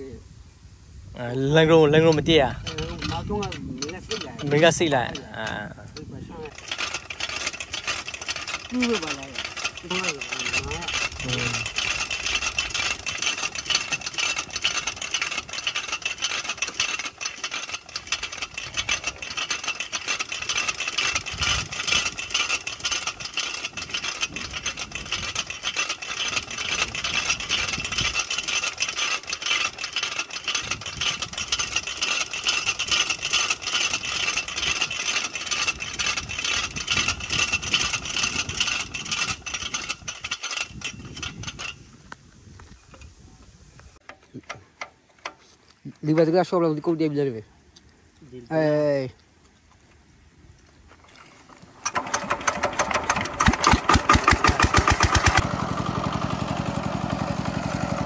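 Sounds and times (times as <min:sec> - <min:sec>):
winch cable metallic clatter: 0:01.6 - 0:42.1, 0:44.0 - 0:47.5, 0:50.9 - 0:58.0.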